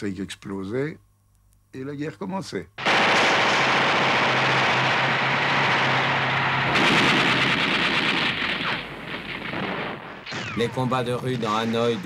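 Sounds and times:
explosions: 2.8 - 12.0
gunfire: 2.8 - 12.0.

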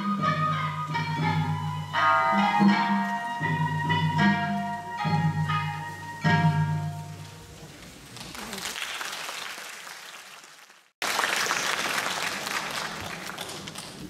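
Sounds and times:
audience applause: 8.1 - 14.0.

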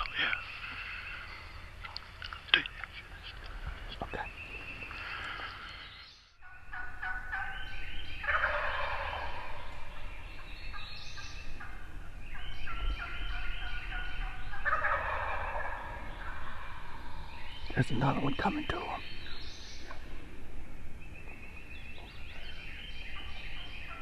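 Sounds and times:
turkeys gobbling: 6.4 - 17.3.

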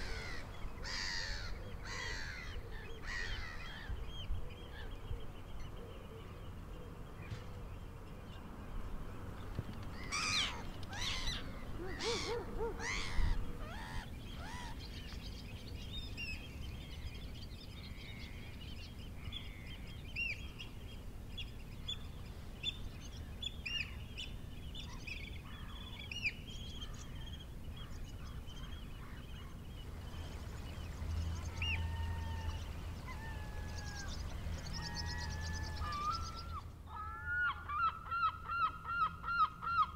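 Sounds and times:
small birds chirping: 0.0 - 36.7
harsh bird calls: 10.0 - 15.5, 24.8 - 39.9
low steady rumble: 26.5 - 36.9.

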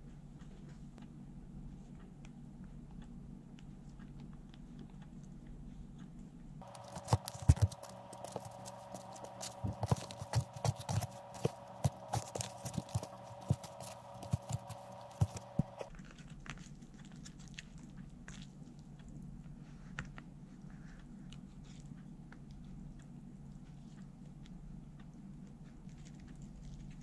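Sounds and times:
steady hum: 6.6 - 15.9.

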